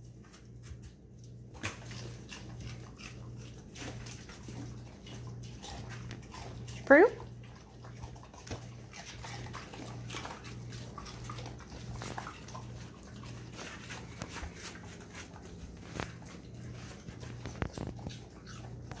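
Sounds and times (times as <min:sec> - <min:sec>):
dog claws clicking on tile: 0:08.4 - 0:19.0.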